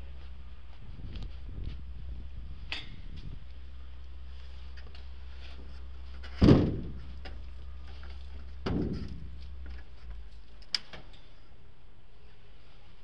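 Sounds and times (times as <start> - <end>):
knocks against metal and glass: 8.6 - 9.3.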